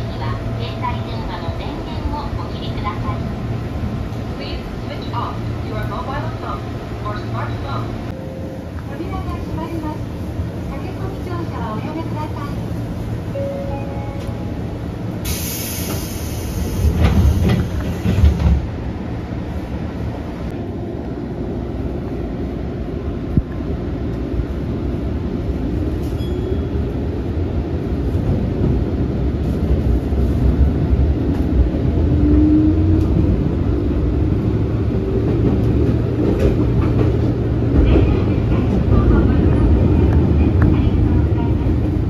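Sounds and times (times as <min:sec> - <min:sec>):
train rumbling away: 0:00.0 - 0:42.0
air hissing: 0:15.2 - 0:17.8.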